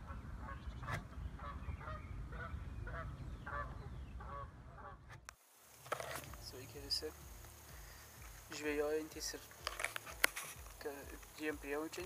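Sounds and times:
geese honking: 0:00.0 - 0:05.2
wind rumble on microphone: 0:00.0 - 0:05.3.

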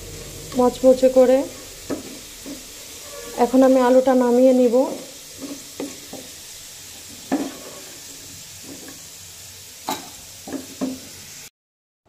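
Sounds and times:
potatoes sizzling in hot oil: 0:00.0 - 0:11.5
spatula knocking and scraping pan: 0:00.2 - 0:04.1, 0:04.9 - 0:09.1, 0:09.8 - 0:11.1.

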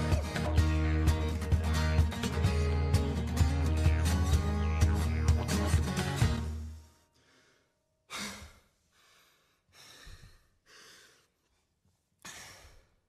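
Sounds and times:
person breathing: 0:06.6 - 0:13.0.

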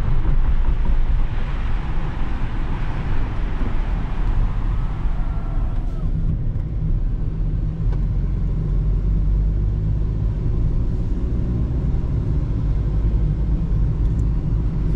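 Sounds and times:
car engine and tyre rumble: 0:00.0 - 0:14.9.

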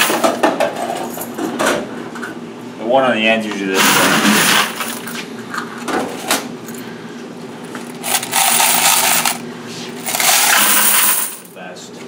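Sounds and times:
coins jangling into a bucket: 0:07.9 - 0:09.4, 0:10.0 - 0:11.6.

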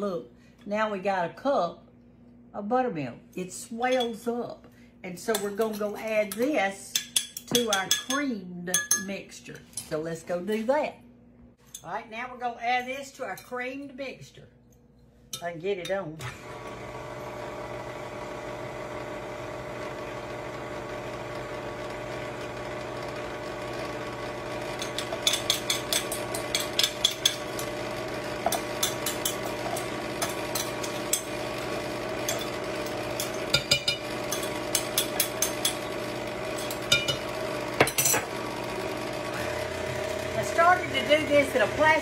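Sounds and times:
electric mixer running: 0:16.2 - 0:42.0.

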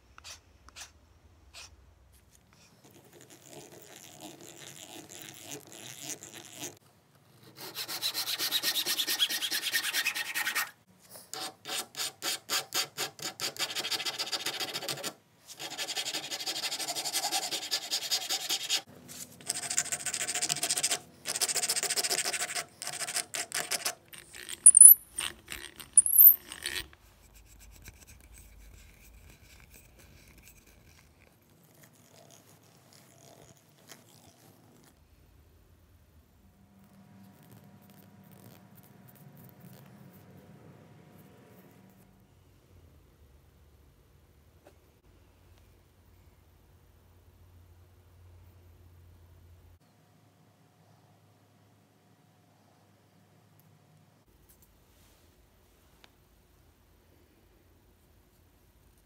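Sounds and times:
sharp high-pitched scrapes: 0:24.2 - 0:26.9.

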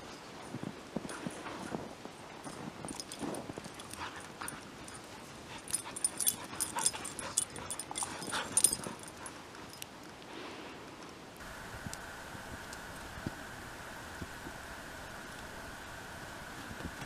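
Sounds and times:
dogs scuffling in snow: 0:00.0 - 0:09.8
dogs vocalizing: 0:02.9 - 0:09.8.

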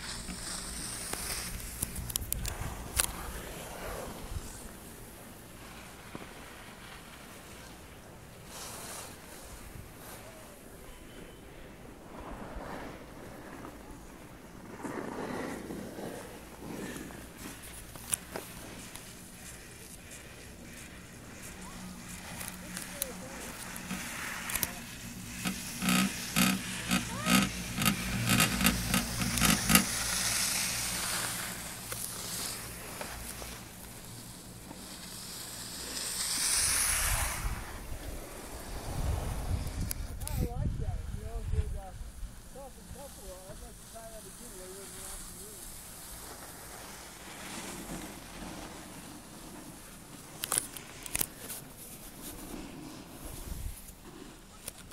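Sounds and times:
low murmur: 0:00.0 - 0:36.1
steady rushing hiss: 0:00.0 - 0:54.9.

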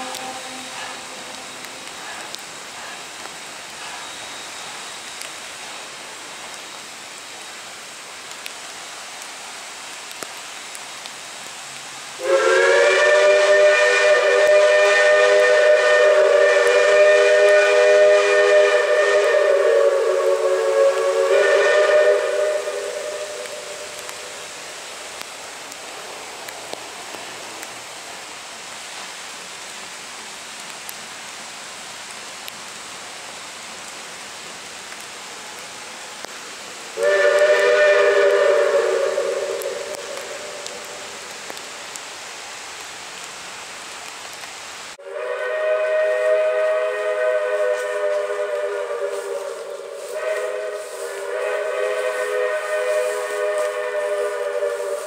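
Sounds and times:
steam locomotive whistle: 0:00.0 - 0:02.3, 0:12.2 - 0:24.4, 0:37.0 - 0:41.0, 0:45.0 - 0:55.0
rain hissing: 0:00.0 - 0:55.0.

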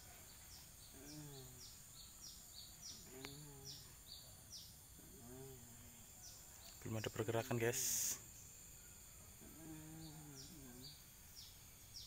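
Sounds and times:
small bird chirping: 0:00.0 - 0:12.0
faint voice: 0:00.9 - 0:01.7, 0:03.0 - 0:04.0, 0:05.0 - 0:06.1, 0:09.4 - 0:11.0.

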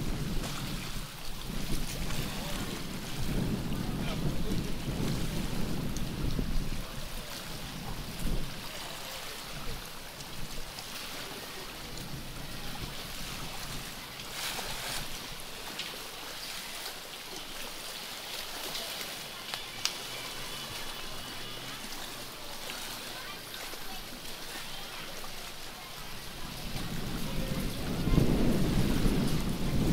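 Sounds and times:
wind on microphone: 0:00.0 - 0:16.4, 0:25.2 - 0:29.9
water lapping: 0:00.0 - 0:29.9.

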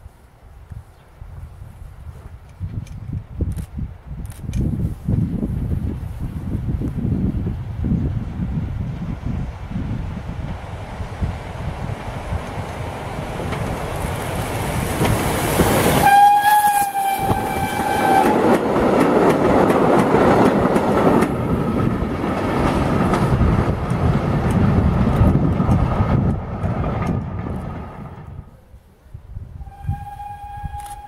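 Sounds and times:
train rumbling past: 0:05.0 - 0:28.6, 0:29.6 - 0:31.0
wheels clicking over rail joints: 0:11.8 - 0:27.7
steam whistle blast: 0:16.0 - 0:18.4, 0:29.6 - 0:31.0.

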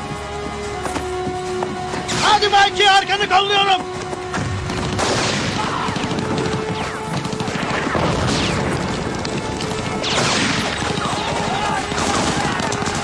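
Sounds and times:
orchestral film score: 0:00.0 - 0:13.0
booms and crashes: 0:04.4 - 0:13.0
gunfire volleys: 0:04.4 - 0:13.0.

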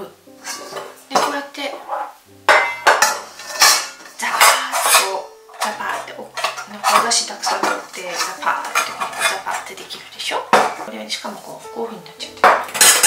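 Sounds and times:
metal bowl parts clinking: 0:02.5 - 0:10.0, 0:12.6 - 0:13.0.

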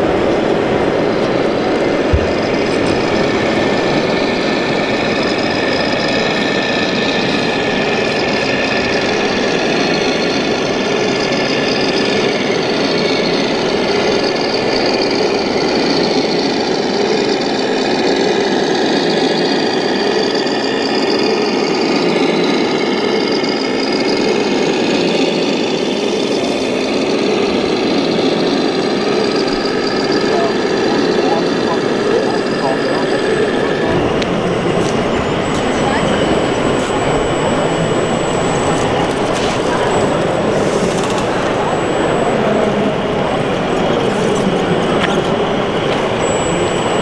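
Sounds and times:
constant din: 0:00.0 - 0:47.0
toy diesel engine sounds: 0:00.0 - 0:47.0.

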